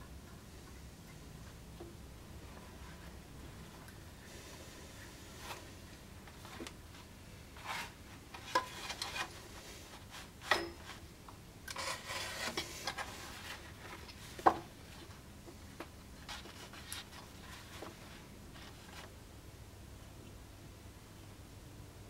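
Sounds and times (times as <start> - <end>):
scrapes and rustles: 5.0 - 11.1, 11.8 - 15.2, 16.2 - 19.2.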